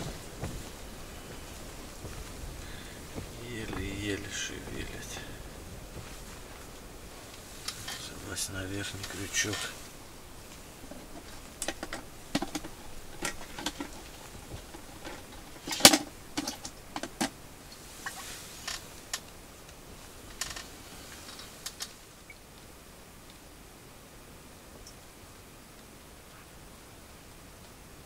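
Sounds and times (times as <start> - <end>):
hands handling fishing tackle: 0.0 - 19.3
loud plastic clack: 11.6 - 17.4.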